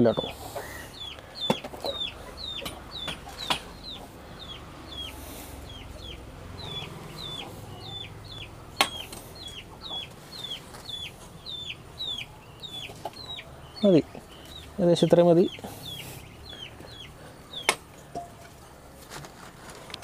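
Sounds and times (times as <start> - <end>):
ducklings peeping: 0.0 - 17.8
sharp knocks: 2.6 - 3.8, 8.8 - 9.2.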